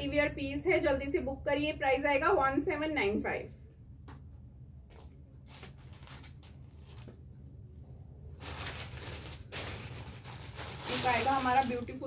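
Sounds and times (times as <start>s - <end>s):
clothing rustling: 8.4s - 11.8s.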